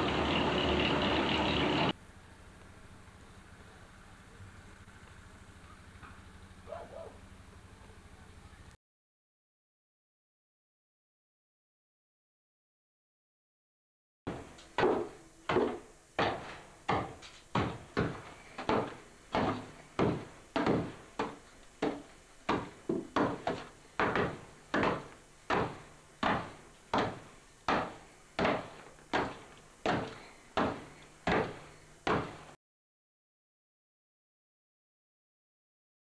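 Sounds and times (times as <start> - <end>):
hammer striking stones: 22.5 - 26.4.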